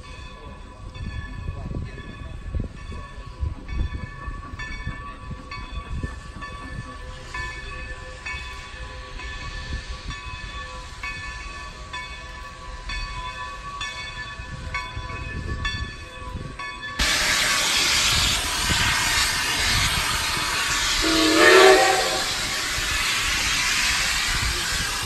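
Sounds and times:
train ringing tones: 0.0s - 25.0s
locomotive steam hiss: 5.9s - 15.5s, 17.0s - 25.0s
train whistle blast: 17.0s - 25.0s.

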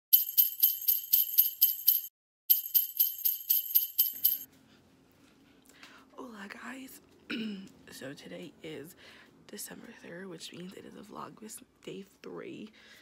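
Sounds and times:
sleigh bells shaken: 0.1s - 4.5s.

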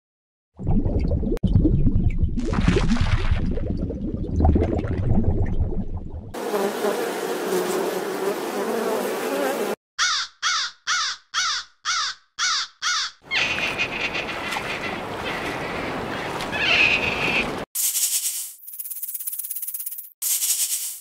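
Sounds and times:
bees buzzing: 6.4s - 9.8s
crow cawing: 10.0s - 15.8s
noisy animal sound: 13.3s - 17.6s.

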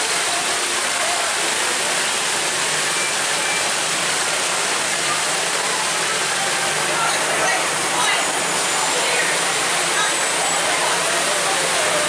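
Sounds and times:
fountain water jets splashing: 0.0s - 12.0s.

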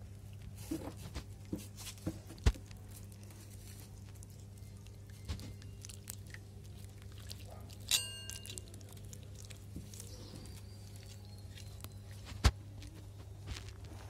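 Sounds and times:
bright metallic ring: 7.9s - 8.6s.

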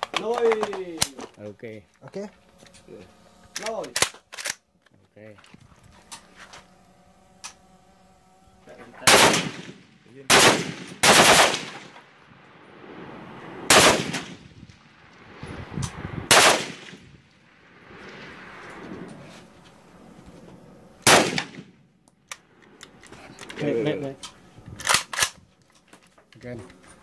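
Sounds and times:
rifle shots echoing: 9.0s - 12.4s, 13.6s - 15.3s, 16.3s - 18.2s, 21.0s - 21.8s.

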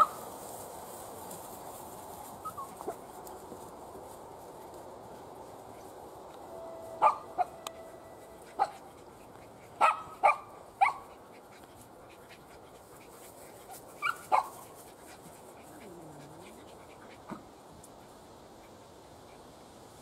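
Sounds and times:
puppies yipping and barking: 2.4s - 3.0s, 14.0s - 14.6s.

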